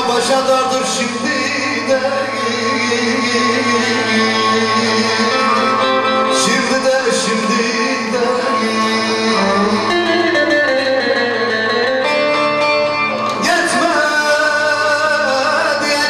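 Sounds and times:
man singing into a microphone: 0:00.0 - 0:12.2, 0:13.3 - 0:16.0
instrumental accompaniment: 0:00.0 - 0:16.0.

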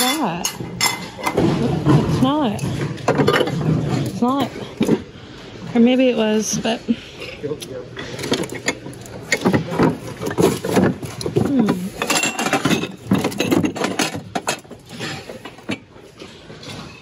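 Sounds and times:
glassware clinking together: 0:00.0 - 0:01.4, 0:11.9 - 0:15.8.

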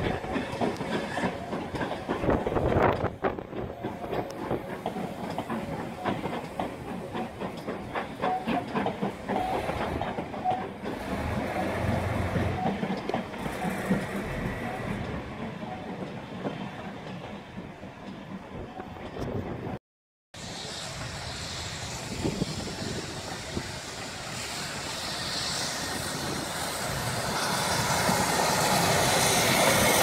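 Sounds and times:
steam locomotive working hard: 0:00.0 - 0:19.8, 0:20.4 - 0:30.0
train wheels clicking over rail joints: 0:00.0 - 0:19.8.

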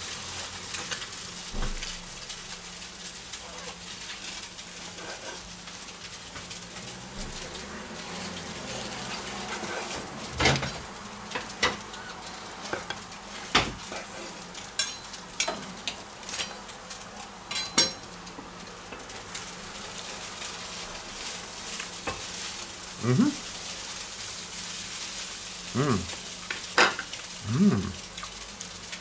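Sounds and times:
faint hiss: 0:25.7 - 0:26.2.

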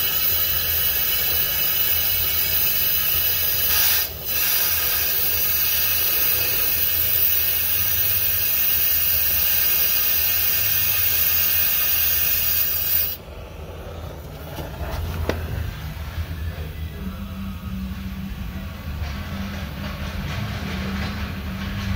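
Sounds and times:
gas torch flame hissing: 0:00.0 - 0:15.8
flame low rumble: 0:11.0 - 0:21.7.

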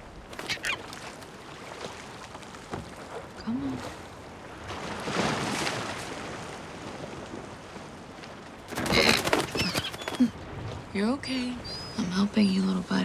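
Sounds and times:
seagull wings flapping: 0:00.3 - 0:01.3, 0:08.6 - 0:10.4
seagull squawk: 0:00.4 - 0:00.9, 0:08.9 - 0:10.3.

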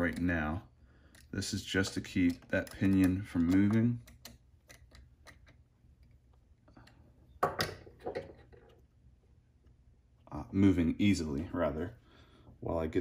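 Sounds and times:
hand tool clicking on small screws: 0:01.1 - 0:05.6.

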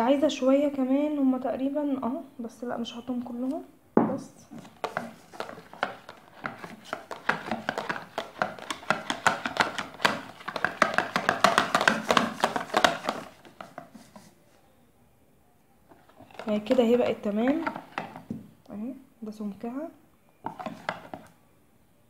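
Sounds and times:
whisk beating batter in a tub: 0:04.6 - 0:14.3.

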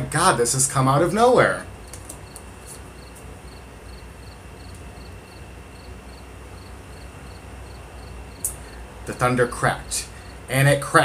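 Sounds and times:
room noise hum and hiss: 0:00.0 - 0:11.0
cricket chirping: 0:01.8 - 0:08.8.

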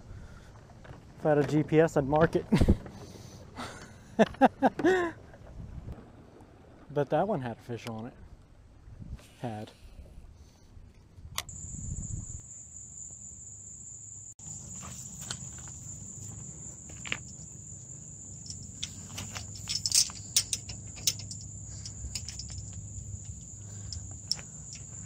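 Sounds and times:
high-pitched insect drone: 0:11.5 - 0:25.0
chain-link gate latch clicking: 0:18.3 - 0:25.0.

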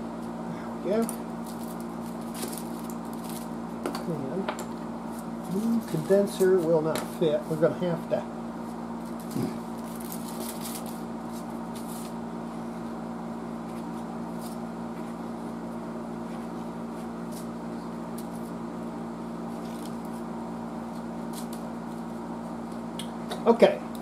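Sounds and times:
steady low hum: 0:00.0 - 0:24.0
paper scraping and crinkling: 0:09.2 - 0:12.2.

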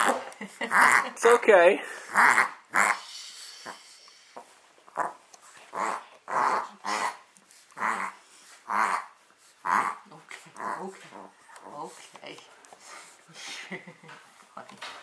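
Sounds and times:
small dog vocalizing: 0:04.9 - 0:07.2.

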